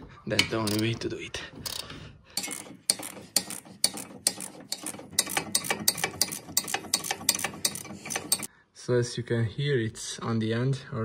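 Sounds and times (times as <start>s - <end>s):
socket ratchet clicking: 0.5s - 0.9s, 1.6s - 8.5s.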